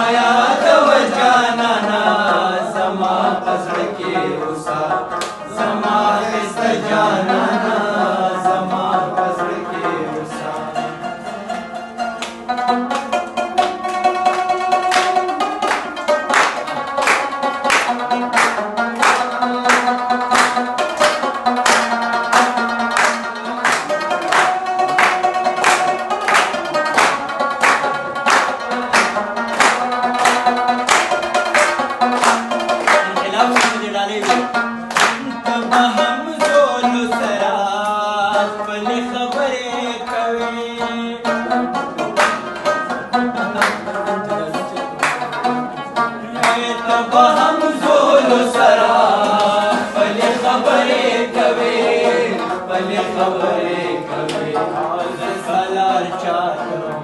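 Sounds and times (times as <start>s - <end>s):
man singing: 0.0s - 11.3s, 33.0s - 34.6s, 35.2s - 41.5s, 46.3s - 50.7s, 52.4s - 57.0s
plucked lute: 0.0s - 57.0s
hand claps: 5.1s - 5.5s, 12.1s - 38.0s, 41.2s - 51.6s, 54.2s - 54.6s.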